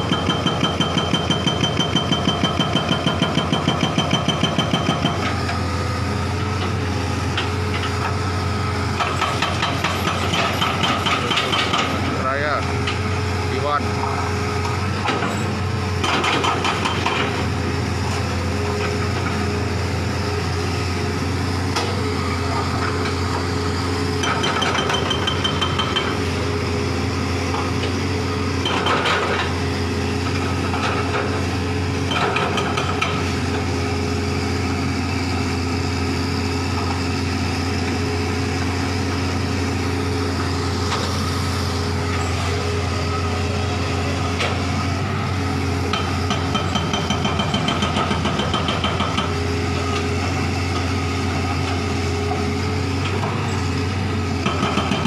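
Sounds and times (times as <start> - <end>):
hydraulic breaker hammering: 0.0 - 5.6, 8.9 - 12.2, 16.0 - 17.5, 24.2 - 26.5, 45.9 - 50.1, 54.4 - 55.0
diesel engine running: 0.0 - 55.0.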